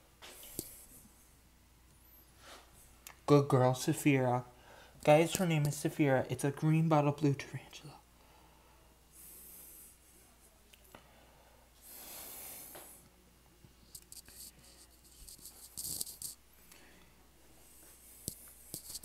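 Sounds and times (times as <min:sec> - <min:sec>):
small clicks and scratches: 0:13.9 - 0:16.4, 0:18.2 - 0:19.0.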